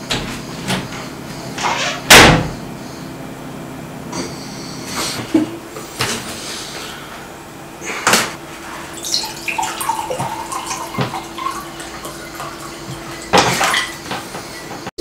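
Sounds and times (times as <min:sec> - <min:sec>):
water pouring into a glass: 0:08.9 - 0:14.0.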